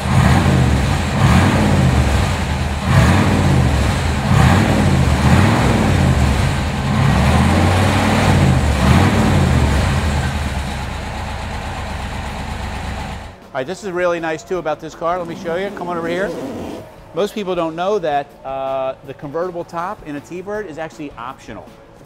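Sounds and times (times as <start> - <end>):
car engine revving: 0.0 - 13.4, 15.1 - 17.2.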